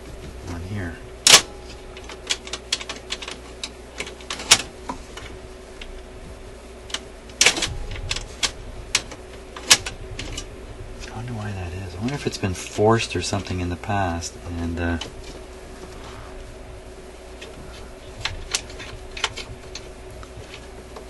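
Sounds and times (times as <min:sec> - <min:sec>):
metallic clicks of record changer: 0:01.2 - 0:06.0, 0:06.8 - 0:10.5, 0:18.1 - 0:21.0.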